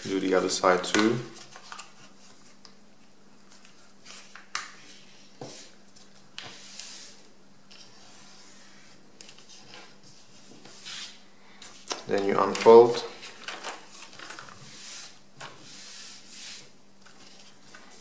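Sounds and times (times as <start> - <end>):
crisp paper rustles: 12.1 - 14.8.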